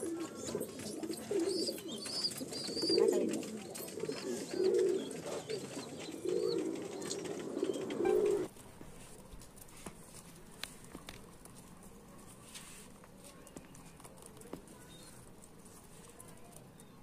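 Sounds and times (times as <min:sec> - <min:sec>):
pigeons cooing: 0:00.0 - 0:08.5.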